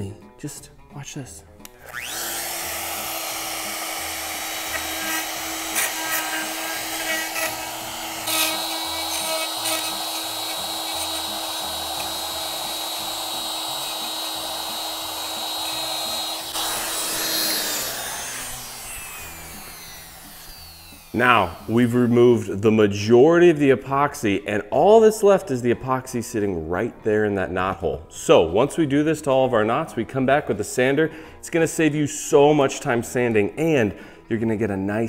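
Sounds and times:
router running: 0:01.7 - 0:22.4
router spinning down: 0:01.7 - 0:22.5
router bit clicking and scraping: 0:04.2 - 0:21.6.

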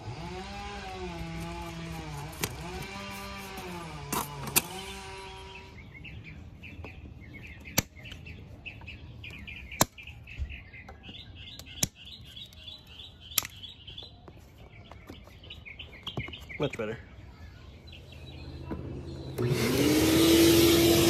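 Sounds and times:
birds chirping: 0:00.0 - 0:21.0
side cutters snipping zip ties: 0:00.7 - 0:05.2.

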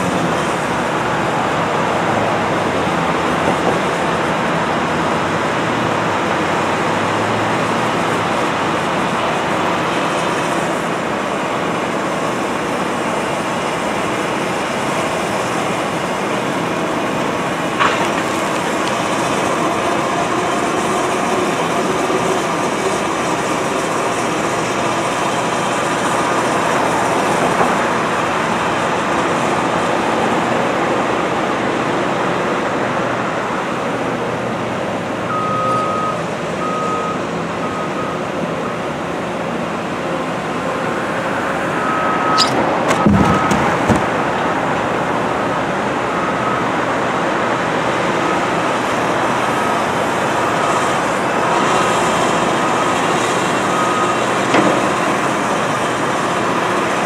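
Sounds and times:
excavator engine and hydraulics: 0:00.0 - 0:57.0
backup alarm beeping: 0:41.7 - 0:43.9.

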